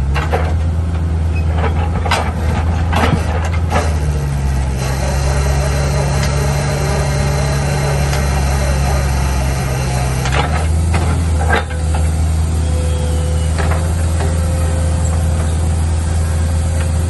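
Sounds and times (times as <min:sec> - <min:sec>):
diesel engine under load: 0:00.0 - 0:17.0.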